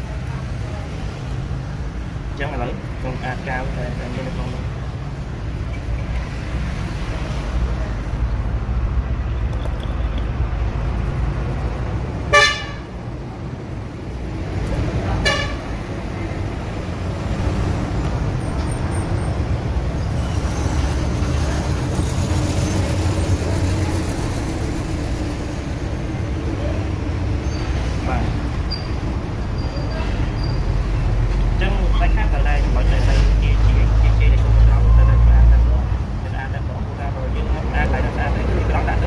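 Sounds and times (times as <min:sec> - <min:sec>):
road traffic rumble: 0:00.0 - 0:39.0
vehicle horn toots: 0:12.3 - 0:12.9, 0:15.2 - 0:15.6.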